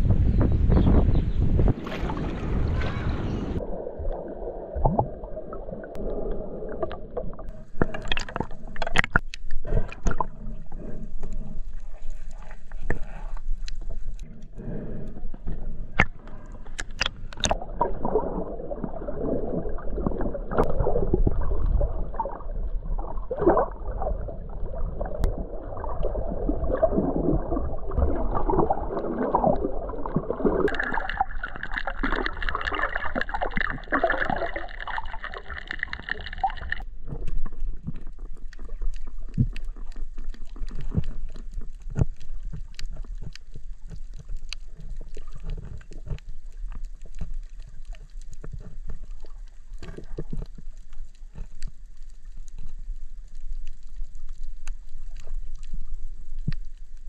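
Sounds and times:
low underwater rumble: 0.0s - 57.0s
underwater bubbling and gurgling: 0.0s - 57.0s
sharp underwater clicks: 7.7s - 17.6s.

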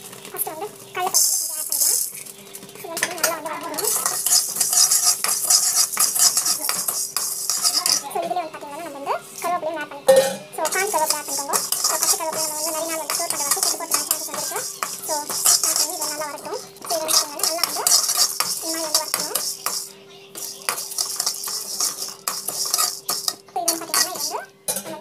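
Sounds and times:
grains rattling and hissing: 0.8s - 8.2s, 10.6s - 24.5s
spatula scraping metal pan: 1.1s - 9.5s, 10.1s - 25.0s.

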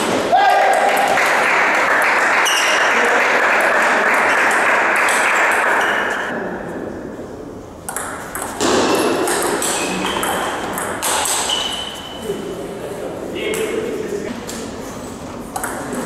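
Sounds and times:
noisy hubbub: 0.0s - 16.0s
table tennis ball clicking: 7.9s - 8.6s, 15.6s - 16.0s.

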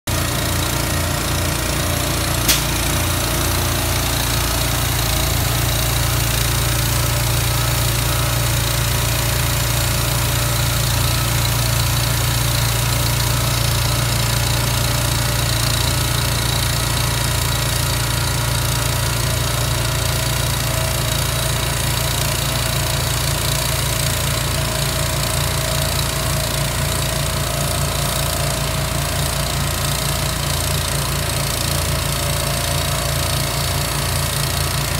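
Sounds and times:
truck engine idling: 0.1s - 34.9s
short sharp click: 2.5s - 2.9s.

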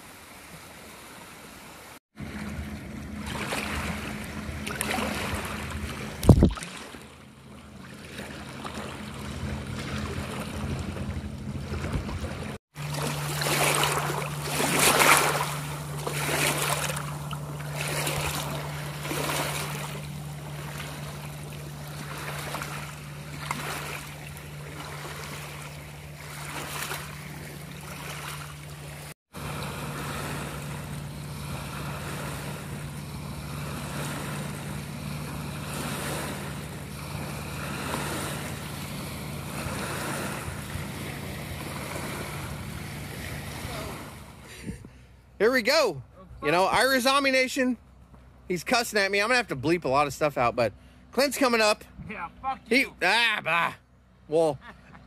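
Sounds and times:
lake waves lapping on shore: 0.0s - 45.9s
low hum: 2.2s - 45.4s.

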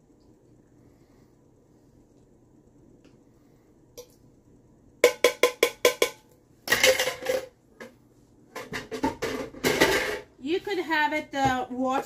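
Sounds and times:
spoon knocking on tin can: 5.0s - 6.2s.

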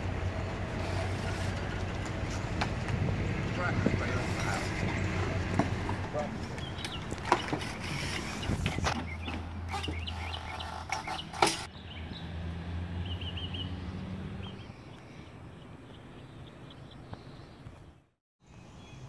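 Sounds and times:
knocks and clatters of work: 0.8s - 11.7s
small bird chirping: 8.2s - 12.2s.

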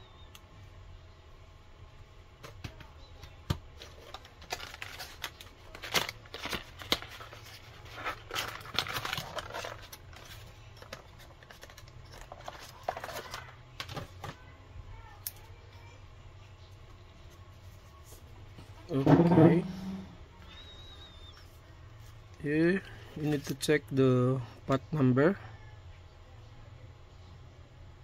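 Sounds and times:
packaging rustling: 3.8s - 14.1s.

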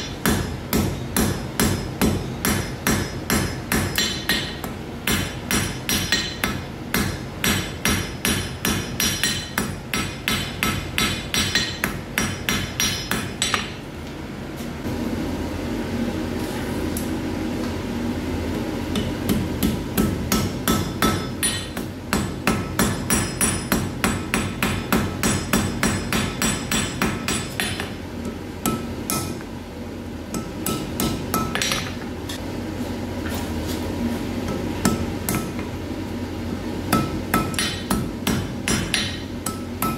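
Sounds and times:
hammer striking iron on an anvil: 0.0s - 13.9s, 18.9s - 29.5s, 30.3s - 32.1s, 34.5s - 35.7s, 36.9s - 39.9s.

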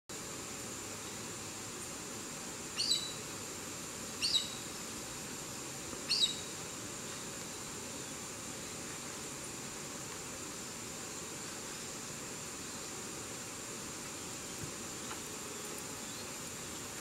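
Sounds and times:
steady hiss: 0.1s - 17.0s
short high bird calls: 2.8s - 3.2s, 6.1s - 6.5s.

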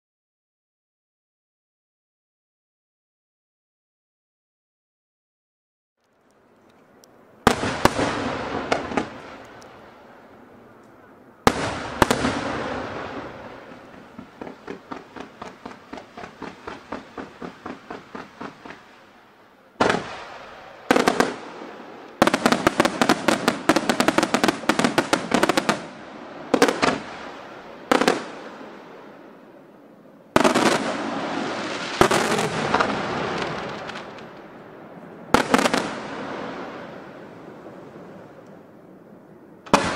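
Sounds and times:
fireworks crackling: 6.0s - 29.5s, 30.3s - 38.8s, 39.7s - 39.9s
rapid firework pops: 13.6s - 18.9s.

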